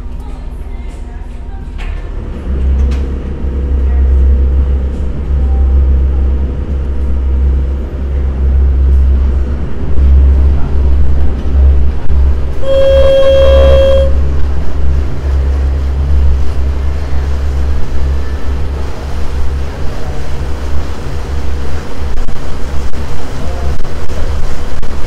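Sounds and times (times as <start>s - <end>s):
boat engine drone: 0.0s - 25.0s
water noise: 2.0s - 25.0s
wind noise: 8.9s - 25.0s
horn blast: 12.5s - 14.5s.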